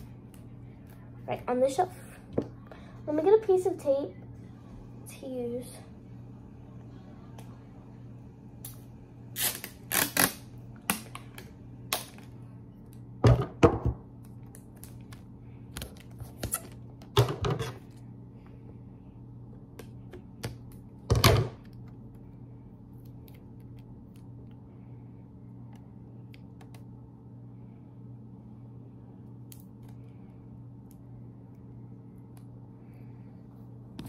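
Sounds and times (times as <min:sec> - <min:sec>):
sticky tape peeled and torn: 0:08.6 - 0:11.0.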